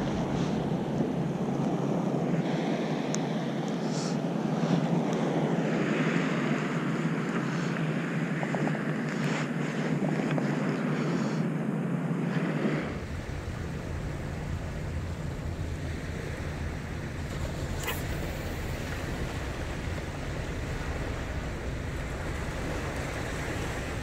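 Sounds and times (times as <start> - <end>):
small surf waves: 0.0 - 24.0
wind blowing across microphone: 0.0 - 24.0.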